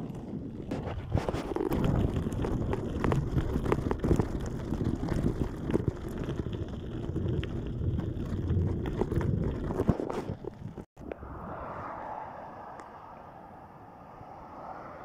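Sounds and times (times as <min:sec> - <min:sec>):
small knocks and crackles: 0:00.0 - 0:10.9
wind buffeting microphone: 0:00.0 - 0:15.0.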